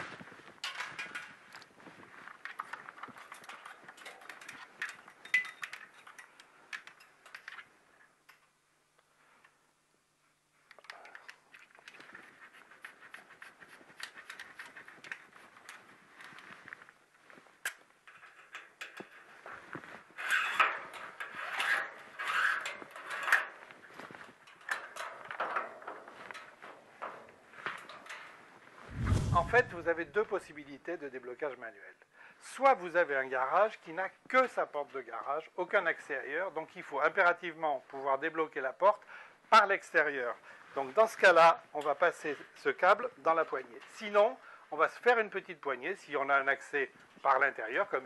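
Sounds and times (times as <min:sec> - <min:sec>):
metal scrapes and rubs: 0:20.0 - 0:23.6, 0:28.9 - 0:30.1.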